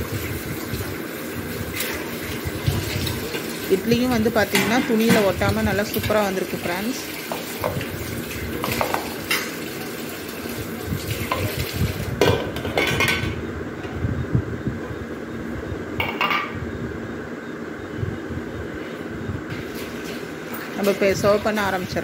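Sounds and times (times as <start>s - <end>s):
metal plate knocking on metal bowl: 12.2s - 13.4s, 16.0s - 16.6s.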